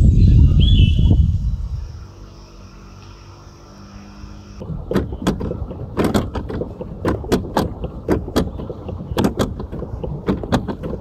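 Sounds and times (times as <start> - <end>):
pedal boat clunking: 4.6 - 11.0.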